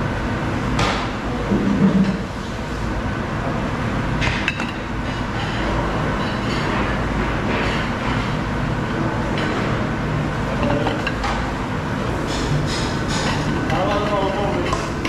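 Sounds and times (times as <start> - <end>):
kitchen rumble: 0.6 - 15.0
plates and bowls clinking: 10.6 - 11.4.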